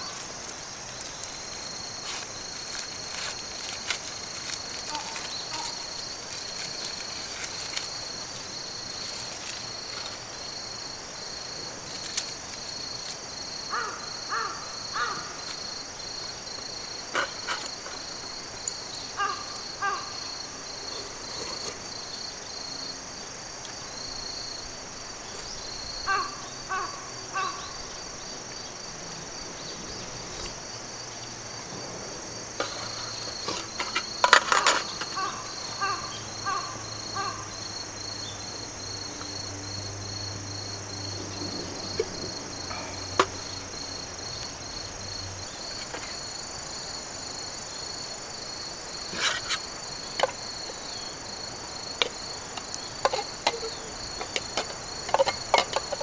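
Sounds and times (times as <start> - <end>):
insects trilling: 0.0 - 56.0
crow cawing: 4.9 - 5.9, 13.7 - 15.5, 19.2 - 20.4, 26.0 - 27.8, 35.0 - 37.6.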